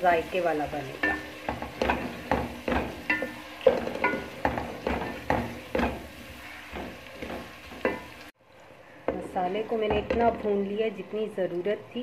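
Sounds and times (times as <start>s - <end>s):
light sizzle: 0.0s - 12.0s
spatula scraping metal pot: 0.9s - 8.2s.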